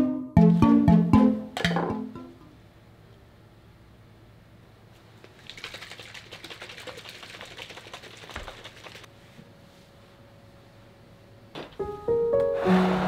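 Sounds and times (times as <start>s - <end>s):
plastic tumbler being shaken: 5.2s - 9.1s.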